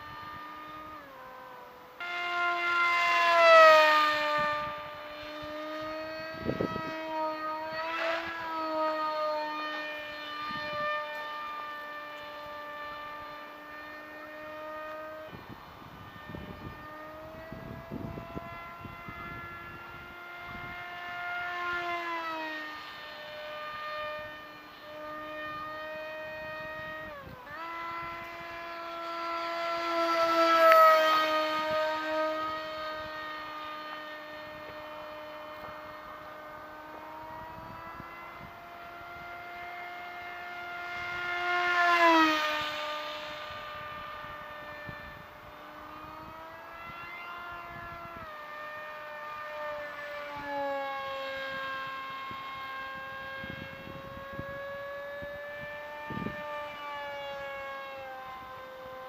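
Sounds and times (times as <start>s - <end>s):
model plane motor whining: 0.0s - 59.0s.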